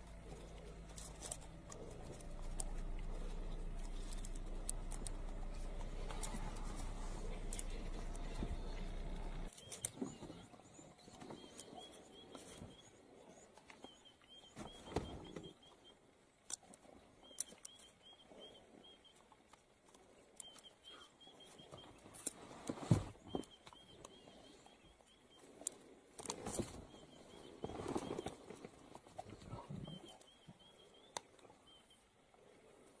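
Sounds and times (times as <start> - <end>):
animal crunching and tearing food: 0.0 - 10.4, 25.4 - 26.8.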